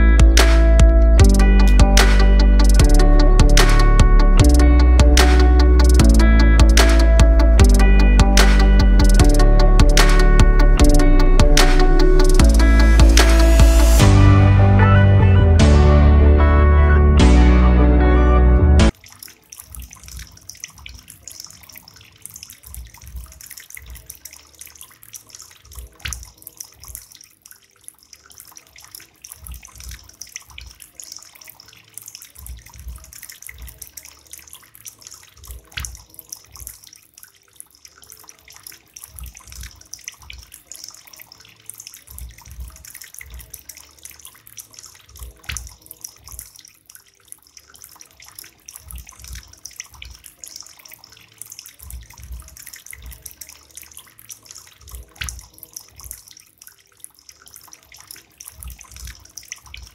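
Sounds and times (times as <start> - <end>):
water trickling and splashing: 0.0 - 14.1, 18.9 - 59.9
low thumps: 0.1 - 14.8.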